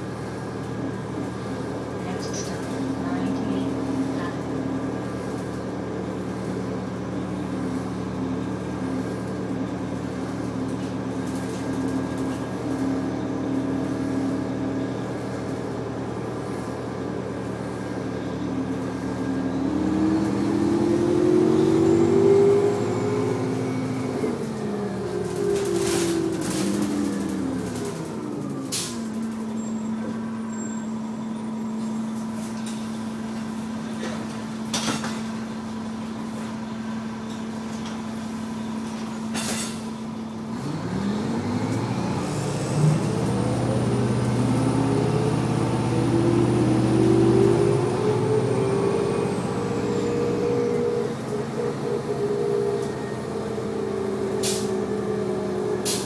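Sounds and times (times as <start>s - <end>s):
bus diesel engine: 0.0s - 56.0s
air brake hisses: 54.4s - 54.7s.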